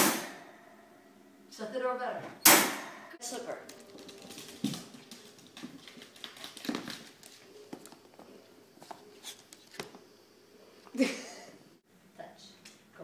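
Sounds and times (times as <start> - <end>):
dog claws clicking on wooden floor: 3.7 - 7.9.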